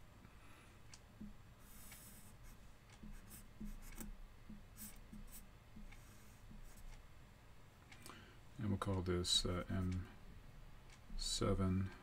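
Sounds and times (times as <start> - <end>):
marker strokes on whiteboard: 1.6 - 7.0.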